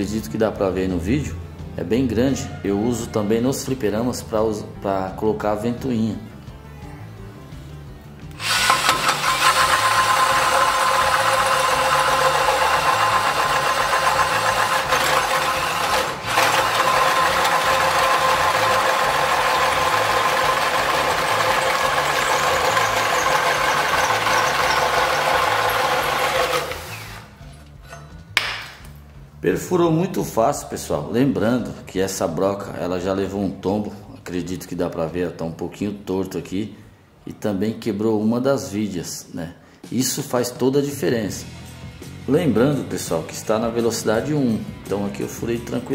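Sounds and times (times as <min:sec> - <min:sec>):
drill motor whining: 0:08.3 - 0:27.4
hole saw rasping through wood: 0:08.4 - 0:27.4.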